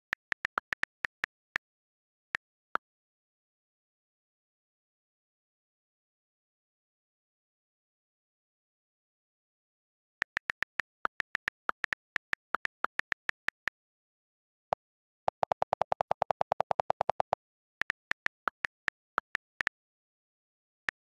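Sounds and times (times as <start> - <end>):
on-screen keyboard typing taps: 0.0 - 1.6, 10.2 - 13.7, 15.3 - 19.7.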